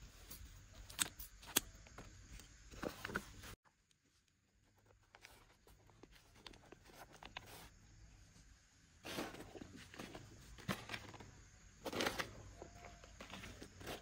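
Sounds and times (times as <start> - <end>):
soil crumbling and scraping: 9.0 - 14.0.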